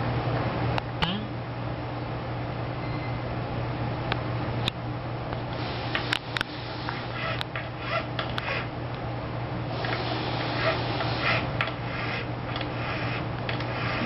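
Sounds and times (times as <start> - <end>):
steady low hum: 0.0 - 14.0
file rasping against metal: 10.6 - 14.0.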